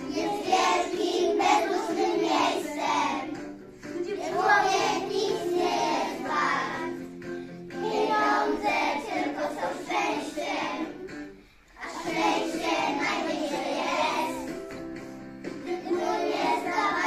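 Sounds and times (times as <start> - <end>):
children singing in unison: 0.0 - 3.4, 4.0 - 7.0, 7.7 - 11.0, 11.7 - 14.6, 15.6 - 17.0.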